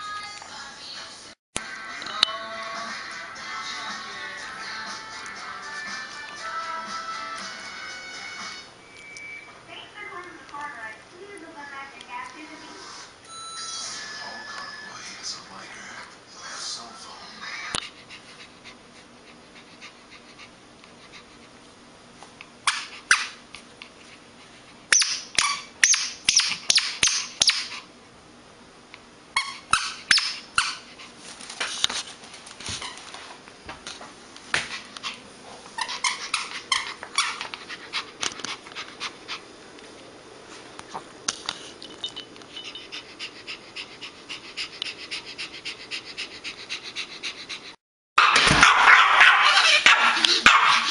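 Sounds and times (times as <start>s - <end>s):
small dog yapping: 22.7s - 23.4s, 24.9s - 27.7s, 29.4s - 30.8s, 48.2s - 50.9s.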